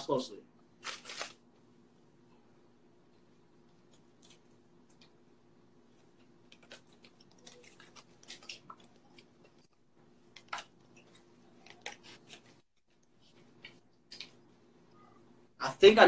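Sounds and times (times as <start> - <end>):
playing cards clicking: 6.5 - 9.6, 10.3 - 12.6, 13.6 - 14.4.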